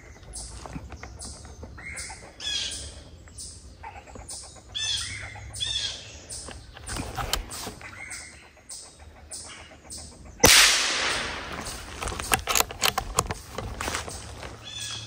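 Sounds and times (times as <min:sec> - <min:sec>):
rifle shot: 0:10.4 - 0:12.6
sharp clicks: 0:10.4 - 0:14.3.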